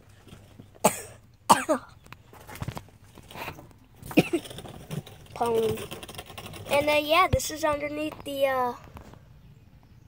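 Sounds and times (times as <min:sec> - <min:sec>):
person coughing: 0:00.8 - 0:02.0, 0:04.1 - 0:04.5.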